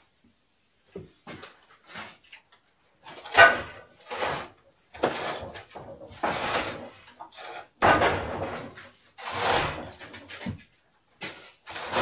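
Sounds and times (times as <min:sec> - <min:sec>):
wooden crate scraping on floor: 0:04.0 - 0:10.6, 0:11.2 - 0:12.0.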